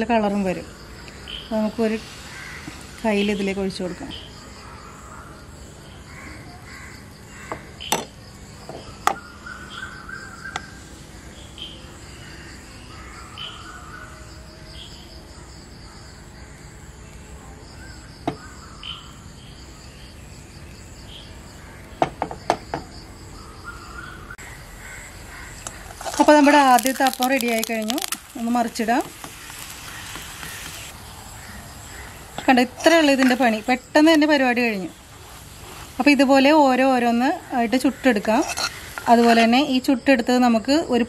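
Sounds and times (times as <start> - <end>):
high insect drone: 0.0 - 41.0
birds calling: 0.8 - 14.3, 17.8 - 19.7, 21.2 - 35.2.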